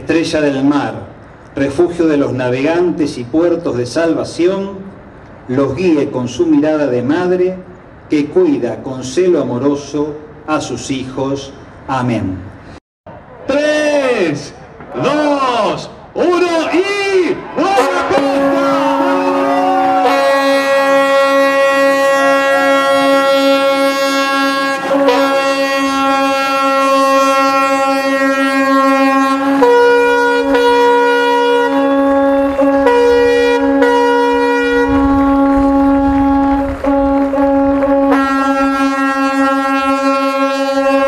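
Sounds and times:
higher ship horn: 17.7s - 41.0s
low ship horn: 17.8s - 41.0s
low rumble: 32.0s - 38.8s.

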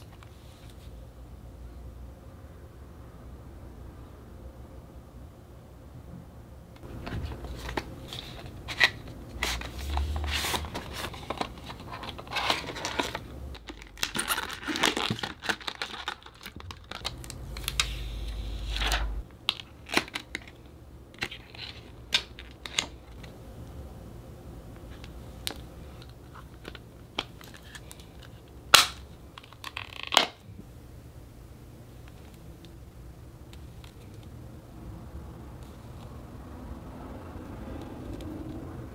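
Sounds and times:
plastic packaging rustling: 6.8s - 20.6s.

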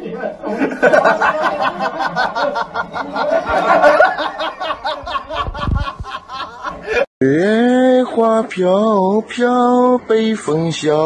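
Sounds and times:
people laughing hard: 0.4s - 7.1s.

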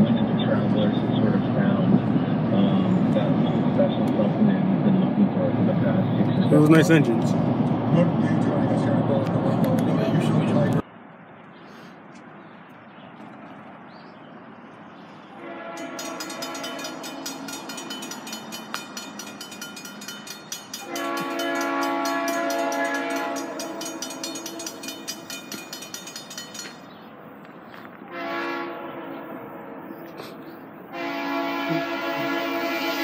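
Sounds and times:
locomotive horn blast: 15.3s - 17.8s, 20.8s - 25.1s, 28.0s - 33.0s
railroad crossing bells ringing: 15.4s - 30.1s.

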